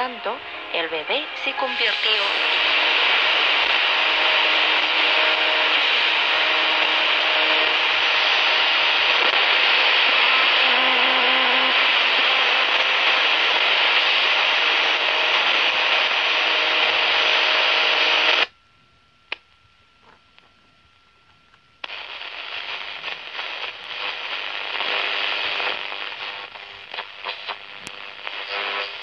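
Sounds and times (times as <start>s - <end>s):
radio static hiss: 0.0s - 18.5s, 19.3s - 29.0s.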